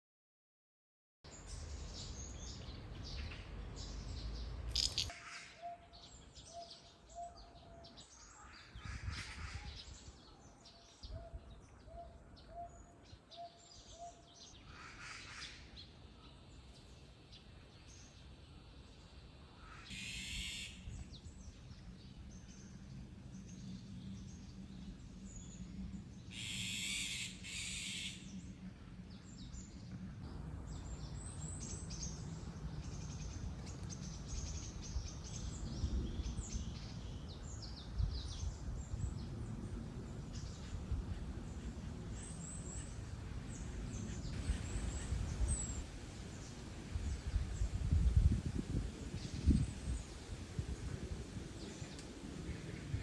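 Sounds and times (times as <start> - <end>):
higher bird calls: 19.5 - 21.1, 26.3 - 28.3.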